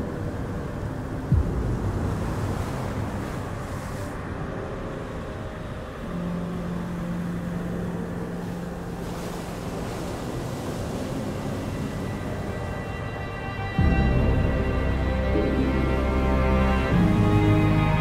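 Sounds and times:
dark cinematic low rumble: 0.2 - 9.7.

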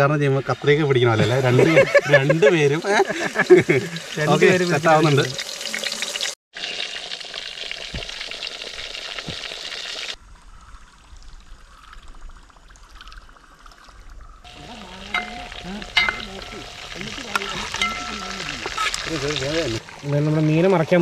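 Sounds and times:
fish sizzling in oil: 0.6 - 10.2, 14.5 - 21.0
spatula clinking against pan: 14.5 - 19.0.

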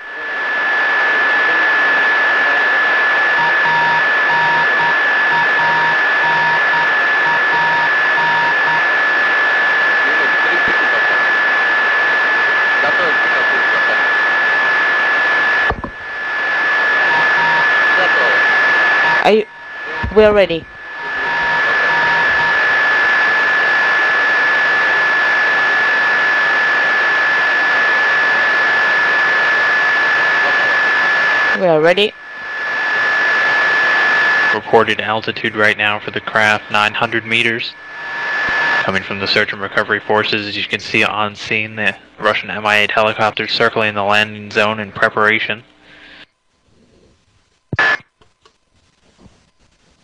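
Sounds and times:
radio static hiss: 0.0 - 50.0
beeping tone: 3.2 - 8.9, 16.8 - 22.8
high whistle: 16.8 - 22.7.

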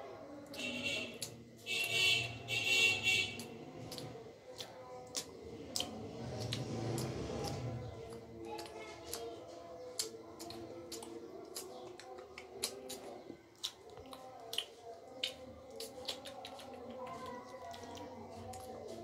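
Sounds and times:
cat licking fur: 6.1 - 7.7.

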